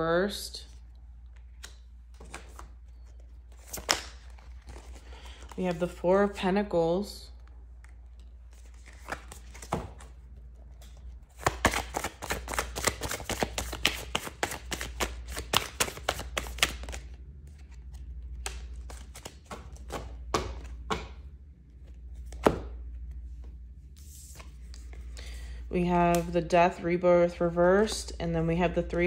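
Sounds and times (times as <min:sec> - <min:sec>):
cards shuffling: 0:01.2 - 0:05.9, 0:07.8 - 0:21.2
cards tapping down: 0:11.4 - 0:17.0.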